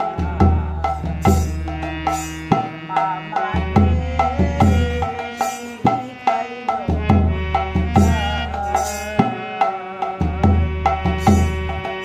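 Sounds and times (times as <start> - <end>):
hand drum rhythm: 0.0 - 12.0
harmonium tones: 0.0 - 12.0
woman singing: 3.0 - 7.0.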